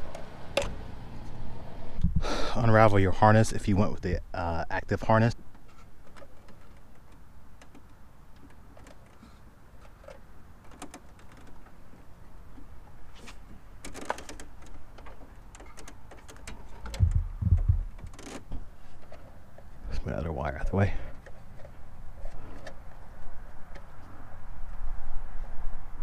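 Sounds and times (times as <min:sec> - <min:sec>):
plastic clicks and rustles: 0:05.3 - 0:19.8, 0:21.0 - 0:24.3
dull thumps: 0:15.1 - 0:18.7.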